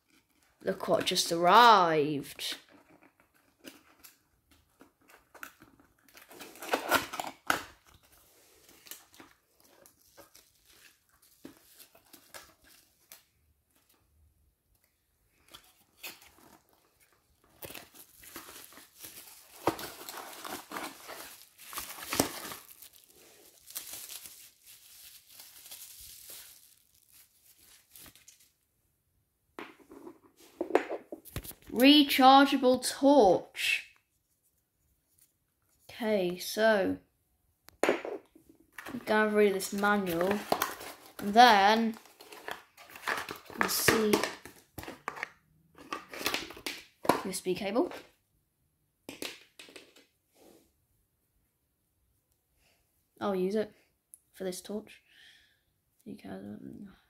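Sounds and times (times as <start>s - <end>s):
bubble wrap crinkling: 2.7s - 14.0s, 15.4s - 28.7s, 38.8s - 45.2s
cardboard packaging being opened: 2.7s - 14.0s, 15.4s - 28.6s, 38.8s - 46.7s.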